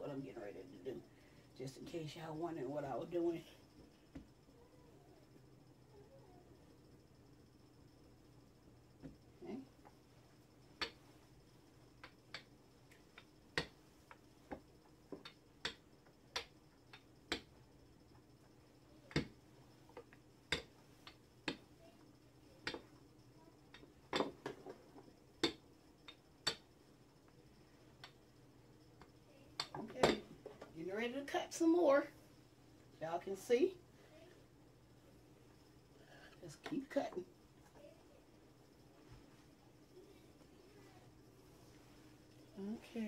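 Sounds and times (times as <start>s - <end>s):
rolling pin clicking and knocking: 14.5s - 17.6s, 25.4s - 26.7s.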